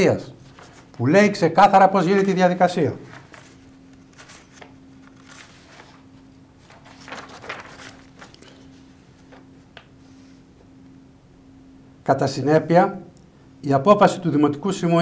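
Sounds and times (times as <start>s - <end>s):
faint steady hum: 0.0s - 15.0s
paper sheets rustling and flipping: 0.4s - 10.4s.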